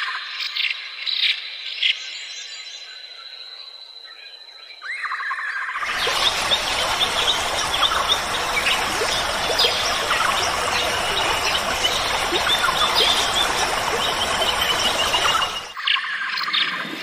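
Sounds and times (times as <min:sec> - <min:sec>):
dense steady hiss: 0:05.8 - 0:15.7.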